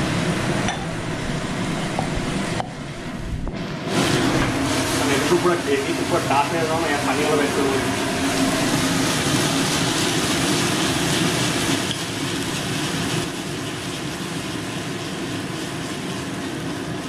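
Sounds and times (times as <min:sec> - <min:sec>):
gravy sizzling and bubbling: 0:00.0 - 0:17.0.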